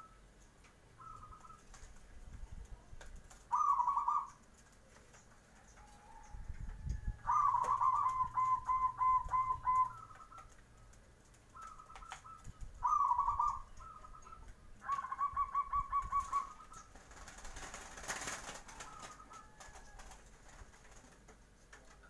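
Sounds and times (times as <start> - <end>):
dove cooing: 1.0 - 1.8, 3.4 - 4.5, 7.1 - 10.6, 11.5 - 17.2.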